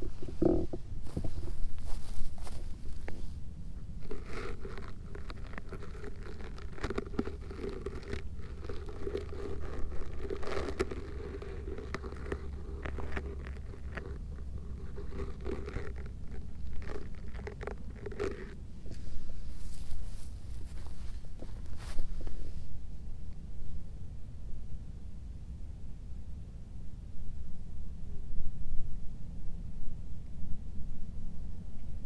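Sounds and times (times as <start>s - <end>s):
dry grass crunching: 0.0s - 3.4s, 4.0s - 22.7s
hand stroking cat fur: 4.0s - 22.7s.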